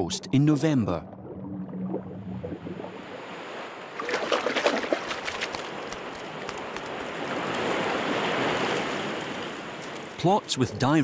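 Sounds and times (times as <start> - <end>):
waves washing over stony beach: 3.2 - 10.3
sharp splashes and clicks: 4.0 - 7.8.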